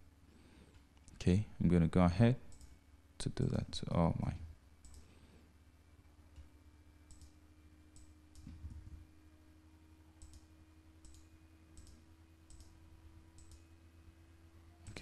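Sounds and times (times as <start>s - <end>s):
low steady hum: 0.0s - 15.0s
computer mouse clicks: 2.5s - 2.8s, 4.8s - 5.1s, 7.1s - 8.8s, 10.2s - 12.8s, 13.4s - 13.6s.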